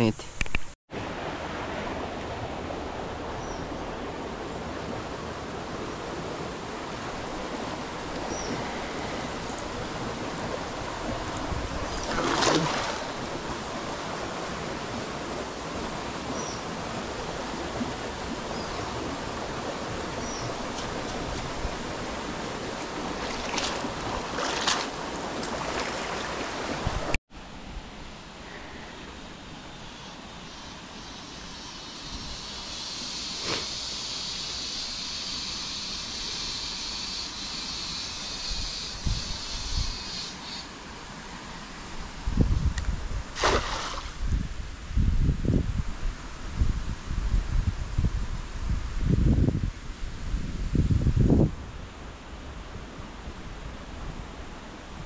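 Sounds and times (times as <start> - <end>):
stream water rushing: 0.9 - 28.1, 40.7 - 44.7
water splashes: 4.0 - 27.2, 43.3 - 44.4.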